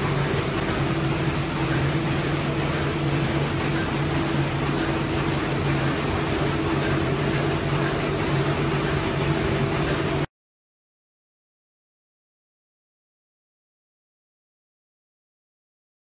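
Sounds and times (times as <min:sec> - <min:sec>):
envelope inserting machine running: 0:00.0 - 0:10.3.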